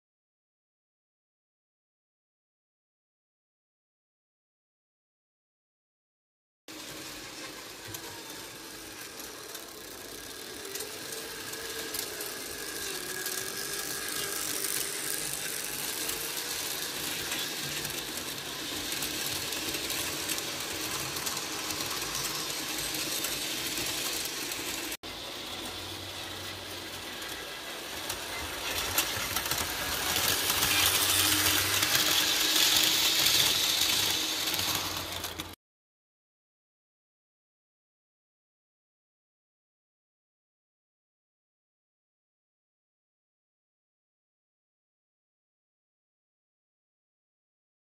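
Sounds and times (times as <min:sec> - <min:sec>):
model train motor whirring: 0:06.7 - 0:35.6
model train wheels on rails: 0:06.7 - 0:35.6.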